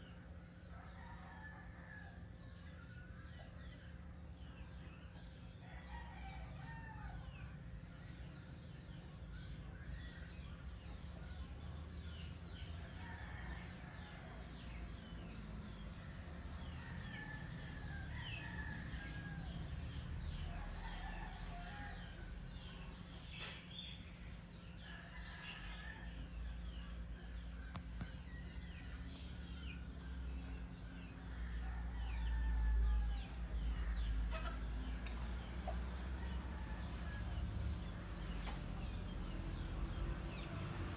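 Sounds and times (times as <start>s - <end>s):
roosters crowing: 5.6s - 7.6s, 30.6s - 40.9s.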